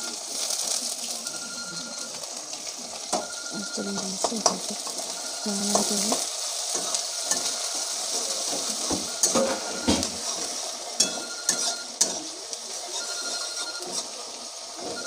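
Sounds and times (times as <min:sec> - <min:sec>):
onions sizzling in hot oil: 0:00.0 - 0:15.0
metal spatula scraping a pan: 0:04.0 - 0:15.0.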